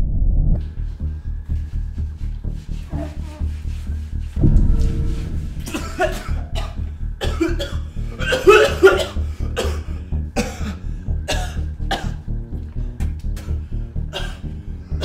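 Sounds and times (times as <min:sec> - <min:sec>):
music with pulsing low beat: 0:00.0 - 0:15.0
man coughing and sputtering: 0:07.2 - 0:12.2, 0:14.1 - 0:14.5.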